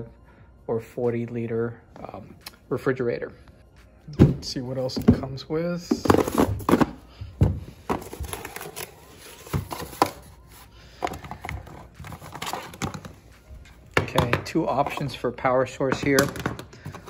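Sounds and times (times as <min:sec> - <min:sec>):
cardboard box rustling: 0:07.8 - 0:13.1.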